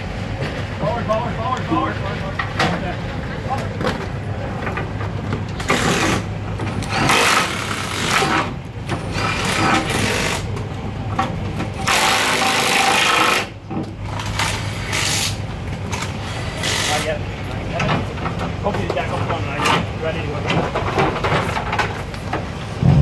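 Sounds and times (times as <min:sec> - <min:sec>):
impact wrench bursts: 0:11.8 - 0:13.5, 0:16.3 - 0:17.1.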